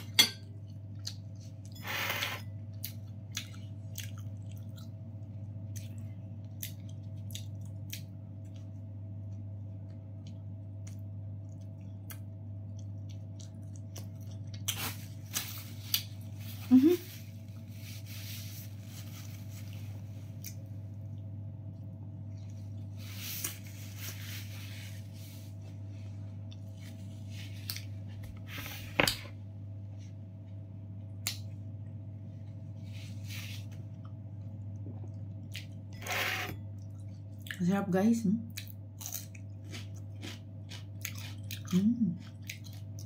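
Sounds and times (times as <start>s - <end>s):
steady low hum: 0.0s - 43.0s
person chewing food: 0.6s - 1.7s, 2.7s - 15.2s, 38.6s - 43.0s.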